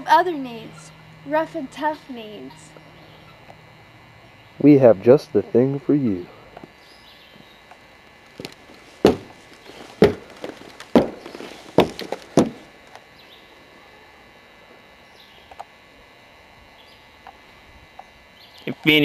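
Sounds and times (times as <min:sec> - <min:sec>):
footsteps on wooden steps: 0:08.3 - 0:12.7.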